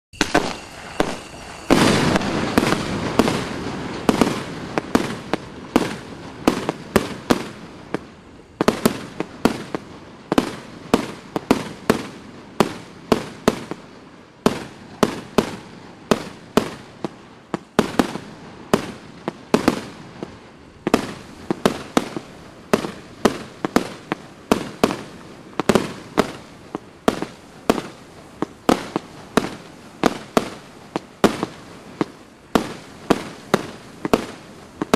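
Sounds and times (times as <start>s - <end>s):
firework shell bursts echoing: 0.2s - 7.6s
fireworks launch bangs: 0.2s - 34.9s.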